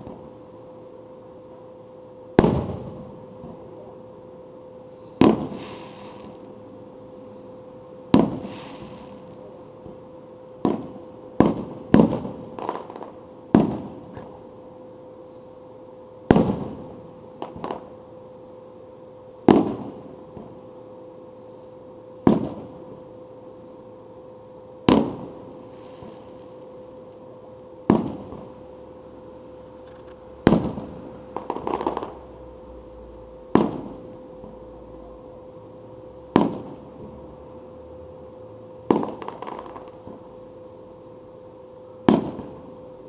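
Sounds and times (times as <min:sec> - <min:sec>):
fireworks booming: 0:02.3 - 0:03.7, 0:05.2 - 0:06.4, 0:08.1 - 0:10.0, 0:10.6 - 0:14.4, 0:16.2 - 0:17.9, 0:19.4 - 0:20.6, 0:22.2 - 0:23.0, 0:24.8 - 0:26.4, 0:27.8 - 0:32.6, 0:33.4 - 0:34.6, 0:36.2 - 0:37.2, 0:38.8 - 0:40.3, 0:42.0 - 0:42.7.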